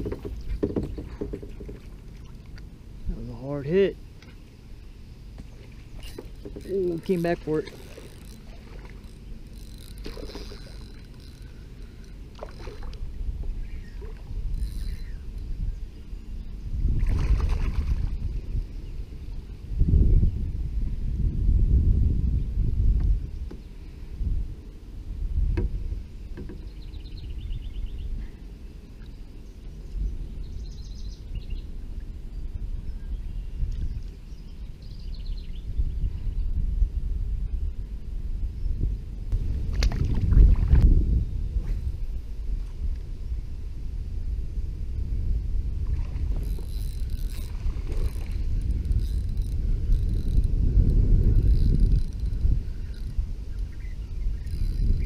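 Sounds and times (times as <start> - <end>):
wind rumble on microphone: 0.0 - 55.0
bird trills: 13.6 - 15.8.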